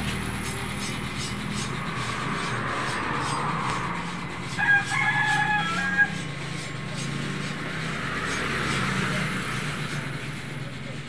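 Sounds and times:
rooster crowing: 4.5s - 6.2s.

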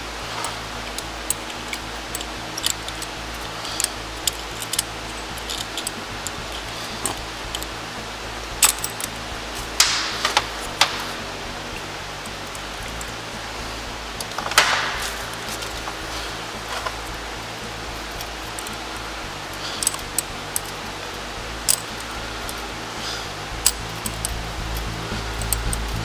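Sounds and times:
steady low hum: 0.0s - 26.0s
metal pick tool clicking: 0.3s - 7.7s, 8.6s - 11.2s, 19.5s - 21.0s, 21.6s - 22.6s, 23.6s - 26.0s.

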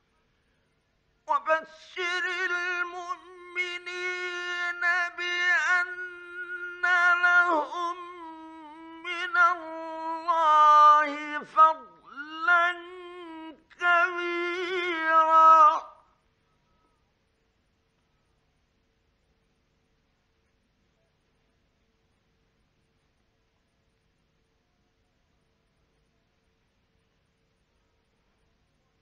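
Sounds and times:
man chanting melodically: 1.3s - 16.1s.

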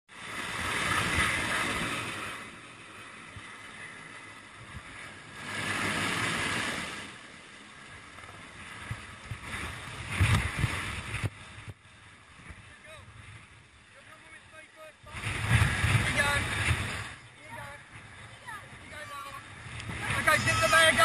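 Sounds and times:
wind noise on microphone: 8.6s - 13.4s, 15.0s - 17.2s, 19.5s - 21.0s.

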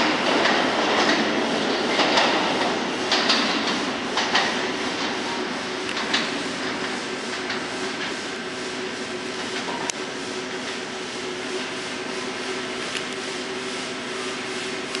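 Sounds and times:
subway train pulling away: 0.0s - 15.0s.

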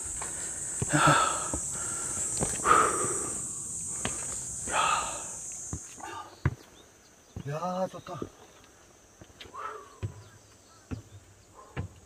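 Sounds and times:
footsteps on rock: 0.0s - 3.0s, 3.9s - 4.8s
high-pitched insect buzz: 0.0s - 6.1s
person breathing heavily: 0.0s - 6.4s, 9.4s - 10.1s.

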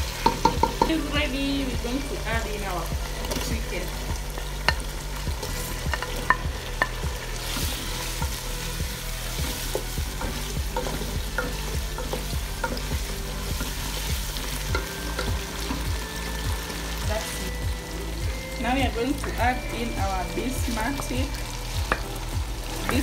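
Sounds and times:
sauce sizzling in a pot: 0.0s - 23.0s
spoon knocking against pot: 0.2s - 1.0s
wooden spoon stirring sauce: 4.3s - 15.9s.

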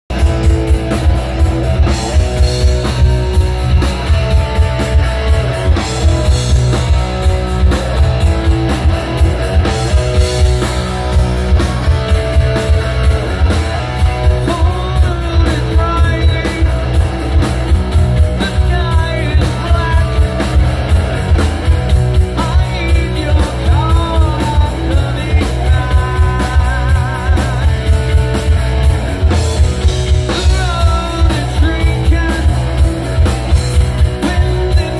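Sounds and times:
lead guitar with bent notes: 0.1s - 34.9s
live rock band playing: 0.1s - 34.9s.

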